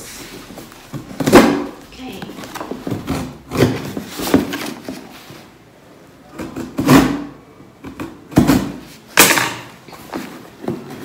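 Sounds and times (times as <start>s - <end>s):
cardboard box rustling: 2.2s - 5.5s.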